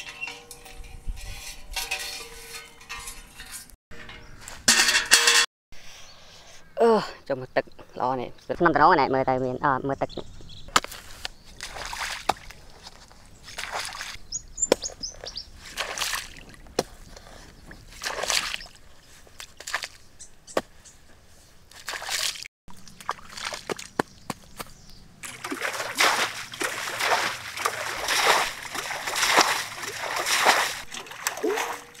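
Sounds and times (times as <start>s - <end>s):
pond water splashing: 10.8s - 20.8s, 21.7s - 32.0s.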